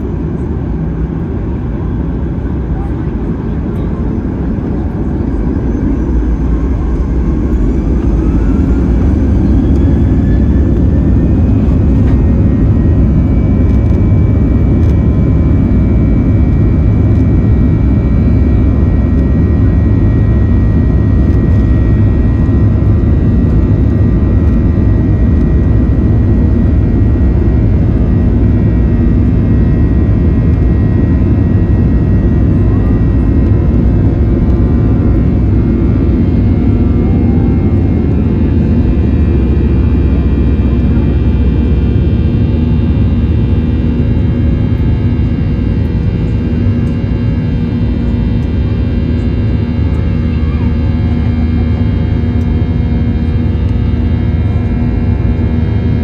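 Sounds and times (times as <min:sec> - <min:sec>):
jet engines spooling up: 0:03.2 - 0:45.9.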